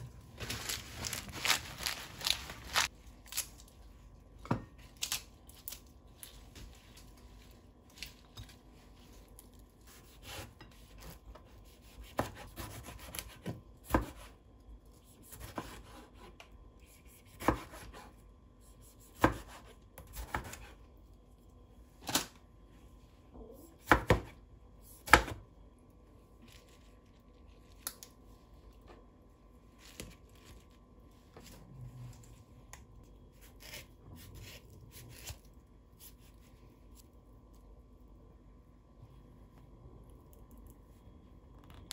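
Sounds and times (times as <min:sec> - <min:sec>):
rustling of lettuce leaves: 0:00.0 - 0:04.1.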